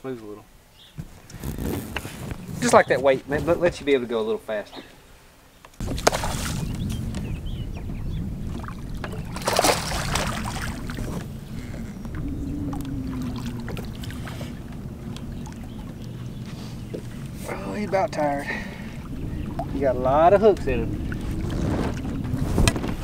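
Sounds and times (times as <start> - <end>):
fish splashing at surface: 5.8 - 7.0, 8.5 - 12.1
water slapping boat hull: 5.8 - 23.0
wind on microphone: 5.8 - 23.0.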